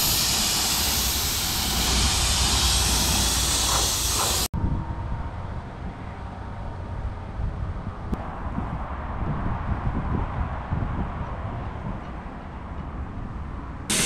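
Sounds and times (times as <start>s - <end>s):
paint spray gun hissing: 0.0s - 4.5s.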